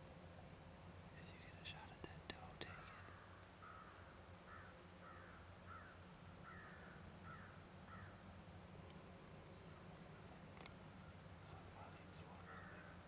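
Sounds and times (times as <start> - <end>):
crow cawing: 2.7 - 8.2, 12.4 - 13.0.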